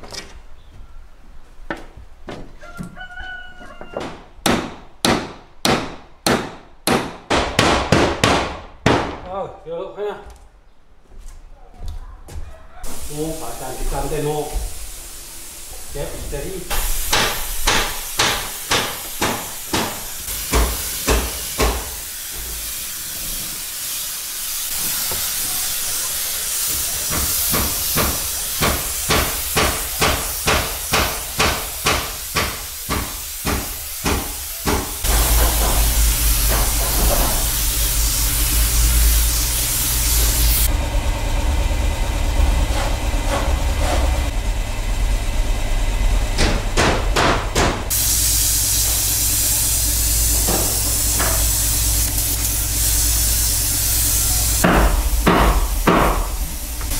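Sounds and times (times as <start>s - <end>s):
hammering: 3.9s - 9.4s, 16.7s - 22.6s, 26.7s - 37.6s, 46.4s - 48.0s, 54.6s - 56.9s
steady hiss: 12.9s - 40.7s, 47.9s - 56.9s
low machine hum: 35.1s - 56.9s.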